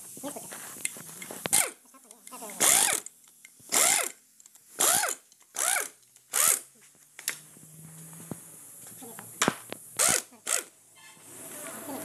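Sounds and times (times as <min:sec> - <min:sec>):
pneumatic wrench spinning: 0:01.4 - 0:06.7, 0:10.0 - 0:10.8.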